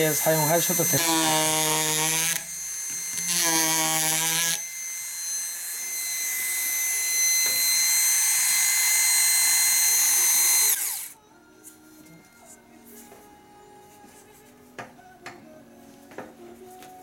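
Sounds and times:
carver running with high whine: 0.0s - 11.2s
electric carver buzzing in wood: 0.0s - 11.2s.

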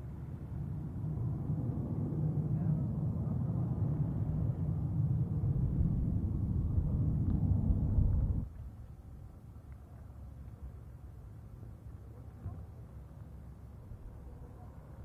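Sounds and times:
propeller plane engines droning: 0.0s - 8.5s.

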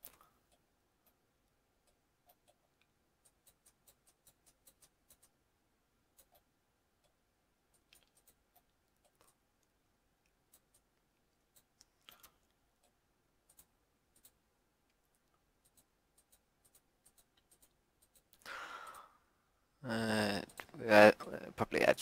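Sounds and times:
computer mouse clicks: 1.8s - 5.4s, 6.1s - 14.4s, 15.6s - 19.0s.

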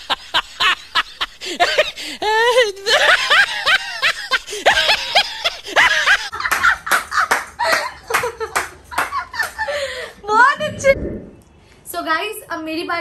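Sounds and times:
laughter in rapid bursts: 0.0s - 10.1s.

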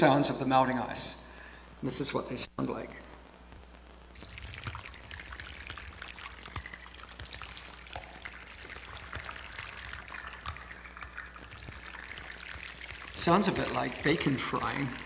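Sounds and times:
underwater crackle of ice bubbles popping: 4.1s - 15.0s.

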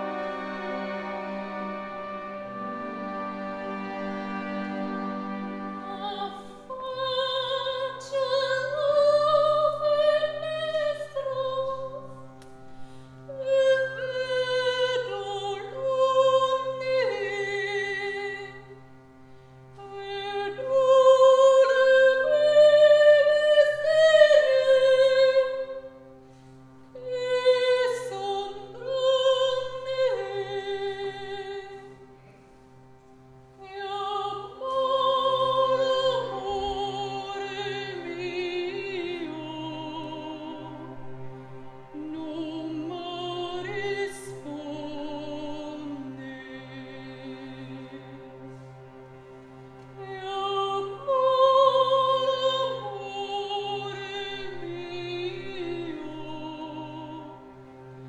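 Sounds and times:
soprano singing with vibrato: 5.8s - 12.0s, 13.3s - 18.6s, 19.8s - 25.8s, 27.0s - 31.8s.

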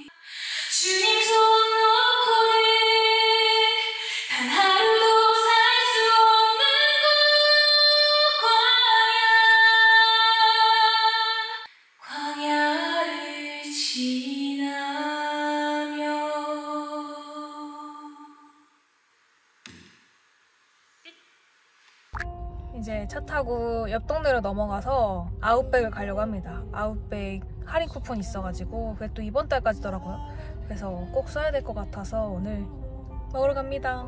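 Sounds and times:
woman singing into microphone: 0.0s - 18.4s, 28.7s - 34.0s.

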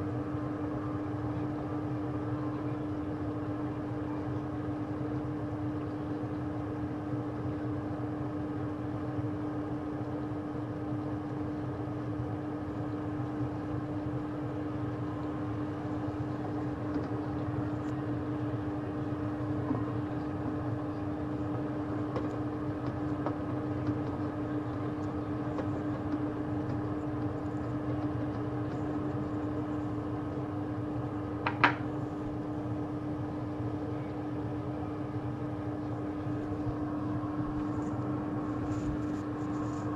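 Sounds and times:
kitchen equipment humming: 12.4s - 39.9s.

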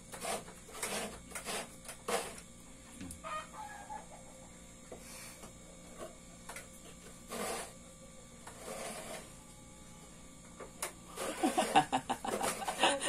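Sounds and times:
coconut scraping on grater: 0.1s - 2.4s, 7.2s - 7.8s, 8.4s - 9.4s.

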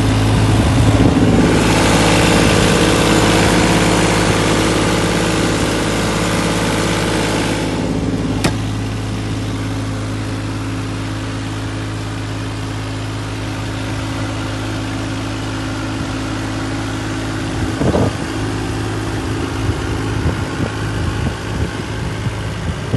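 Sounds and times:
diesel engine idling: 0.0s - 22.9s
sharp knock: 8.4s - 8.7s.

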